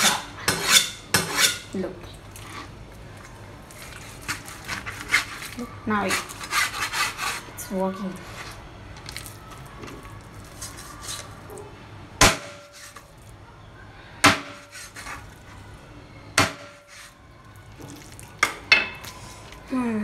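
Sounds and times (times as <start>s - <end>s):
handling raw meat: 8.2s - 11.7s, 16.8s - 19.7s.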